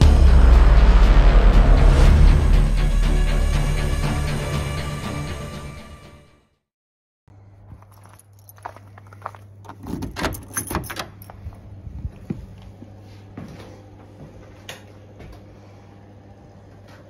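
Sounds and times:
steady low hum: 0:07.3 - 0:17.0
key and lock clicking: 0:09.7 - 0:11.4.

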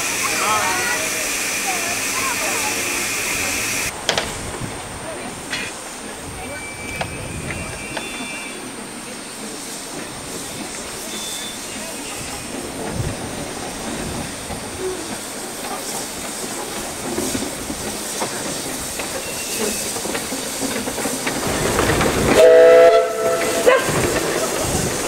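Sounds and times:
steam hissing: 0:00.0 - 0:04.6, 0:05.4 - 0:25.0
steam whistle toots: 0:22.4 - 0:24.0.

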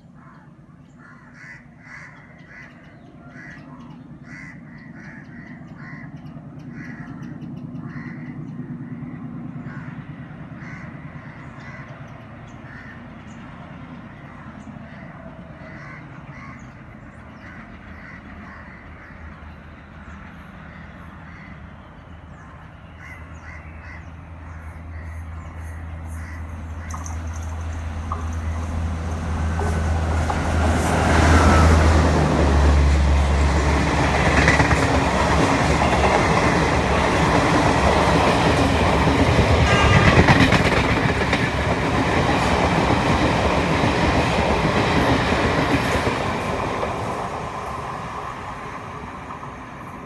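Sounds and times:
crows cawing: 0:00.2 - 0:13.2, 0:14.2 - 0:19.4, 0:20.7 - 0:21.6, 0:22.9 - 0:27.5
diesel locomotive engine drone: 0:01.9 - 0:50.0.

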